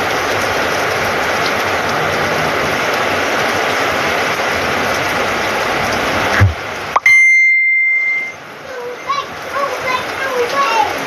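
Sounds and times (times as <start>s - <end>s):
heavy rain pouring: 0.0s - 11.0s
high-pitched beep tone: 7.0s - 8.4s.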